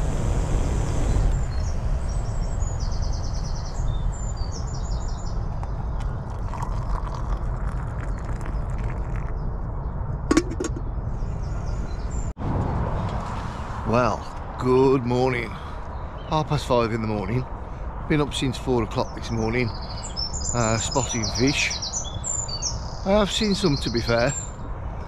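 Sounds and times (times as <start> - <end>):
small birds chirping: 1.0 - 9.6, 14.0 - 25.0.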